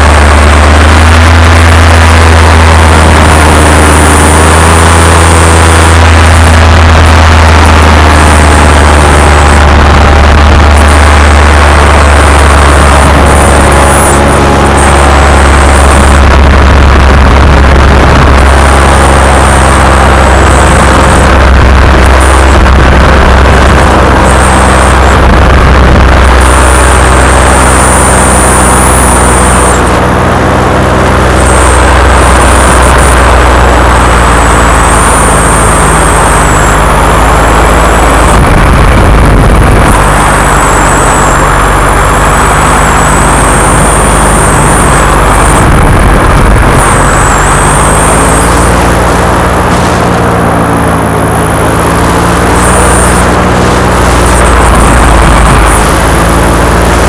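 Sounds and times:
wind rumble on microphone: 0.0 - 30.4, 36.6 - 50.7
paramotor engine and propeller: 0.0 - 57.0.

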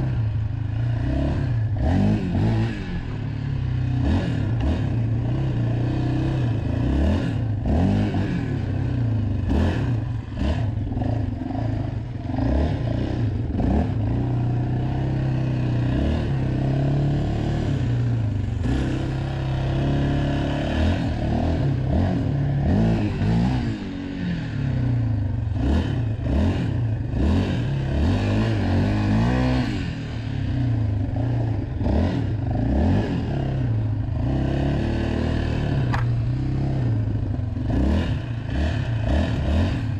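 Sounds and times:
atv engine revving: 0.0 - 39.9
clatter over bumps: 35.9 - 36.3.

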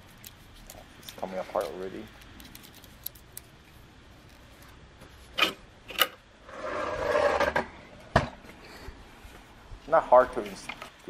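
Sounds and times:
plastic parts scraping and rubbing: 0.0 - 7.6.

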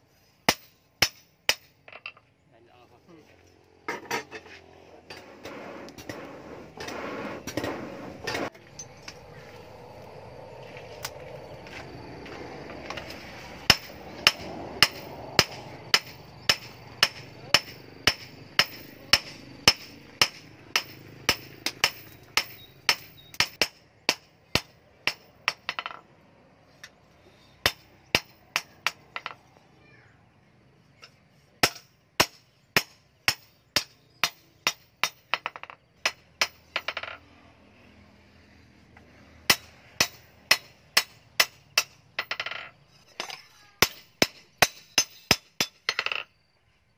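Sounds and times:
hammer striking metal on anvil: 0.5 - 2.1, 13.6 - 26.0, 39.5 - 46.2.

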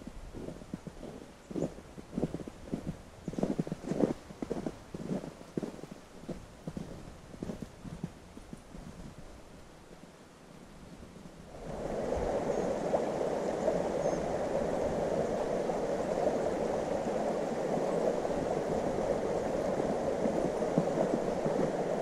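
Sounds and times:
rushing running water: 11.5 - 22.0.

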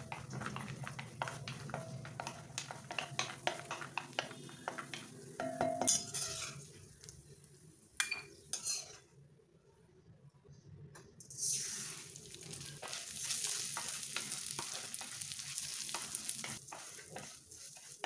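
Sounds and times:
light sizzle of frying: 0.0 - 9.4, 11.2 - 18.0
spatula scraping pan: 5.9 - 6.7, 8.5 - 9.0, 12.5 - 18.0.

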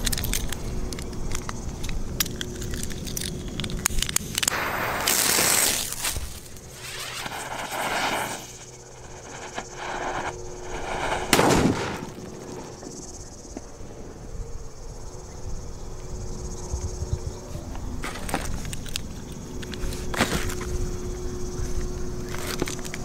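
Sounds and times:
insects chirping: 0.0 - 23.0
firecracker fuse hissing: 3.9 - 13.4
firecracker bang: 6.8 - 13.2.

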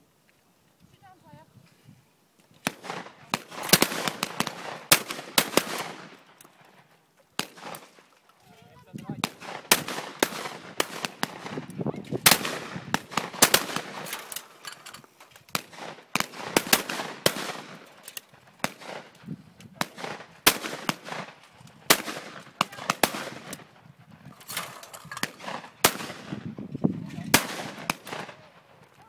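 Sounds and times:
shotguns firing: 2.6 - 6.3, 7.4 - 8.1, 9.2 - 14.6, 15.5 - 19.2, 19.8 - 23.8, 24.4 - 28.7.

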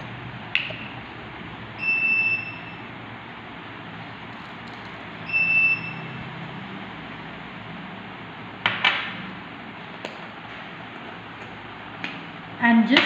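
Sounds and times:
electronic beeps: 5.2 - 6.2.

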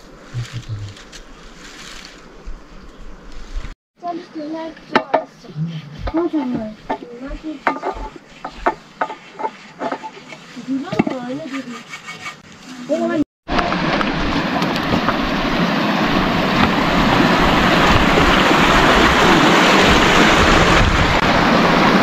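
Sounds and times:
heavy rain pouring: 13.5 - 22.0.

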